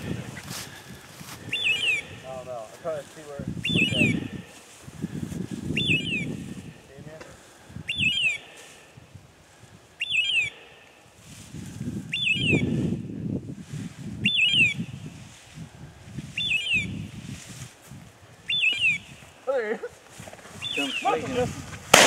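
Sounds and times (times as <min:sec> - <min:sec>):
boots swishing through dry grass: 0:00.0 - 0:02.0, 0:11.2 - 0:12.0, 0:15.1 - 0:16.4, 0:17.1 - 0:18.3
shrill beeper collar call: 0:01.5 - 0:02.3, 0:03.7 - 0:04.3.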